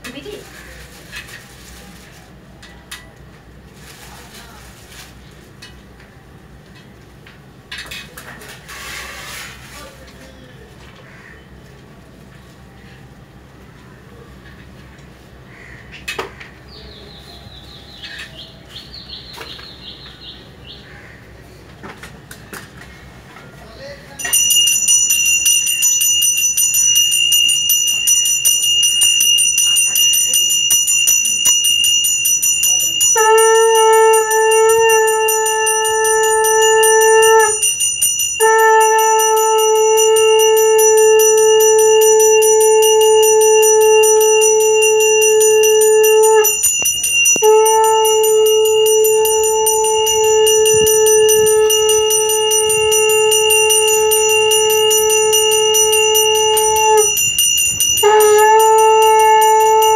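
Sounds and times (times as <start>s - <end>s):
conch shell blasts: 24.2s - 59.9s
hand bell ringing: 24.2s - 59.9s.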